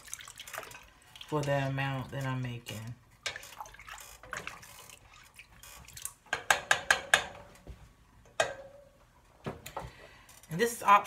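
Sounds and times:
soup stirred in steel pot: 0.0s - 7.5s
utensil tapping against pot: 6.3s - 7.4s.

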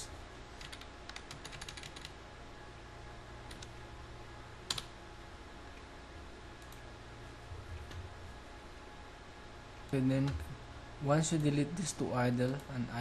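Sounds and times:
faint low hum: 0.0s - 13.0s
computer keyboard clicks: 0.6s - 2.2s, 4.7s - 4.9s.

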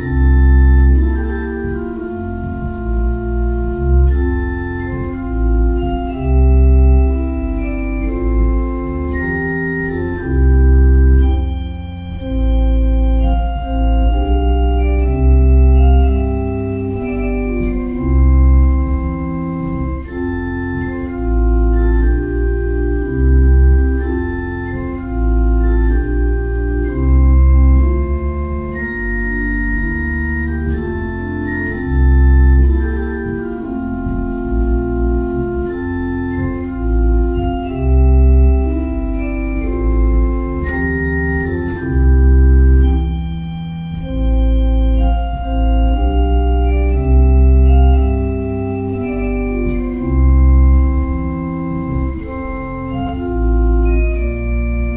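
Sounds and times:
deep organ pedal bass notes: 0.0s - 54.9s
organ chords: 0.0s - 54.9s.

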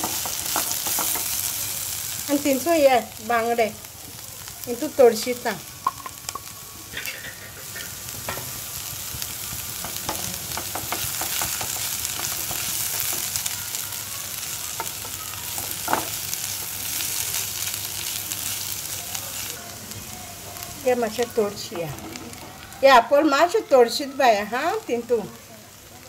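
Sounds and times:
spatula knocking pan: 0.0s - 1.4s, 9.5s - 13.5s, 14.8s - 16.2s
onions sizzling in a hot pan: 0.0s - 26.0s.

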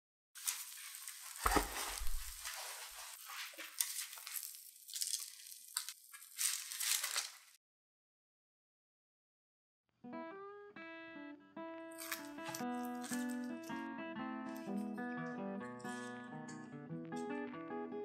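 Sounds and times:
parchment paper crinkling: 0.4s - 7.6s, 12.0s - 13.7s
metal baking tray thump: 1.4s - 2.4s.

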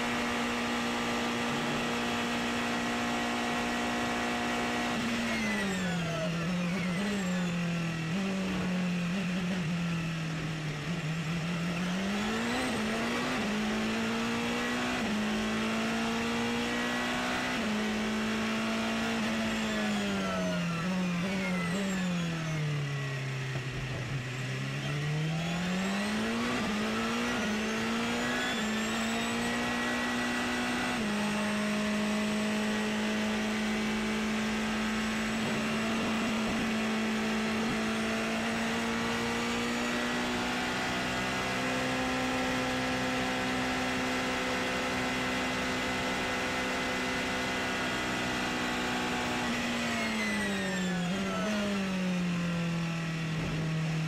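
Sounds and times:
race car engine revving: 0.0s - 9.7s, 10.4s - 22.2s, 23.5s - 54.0s.

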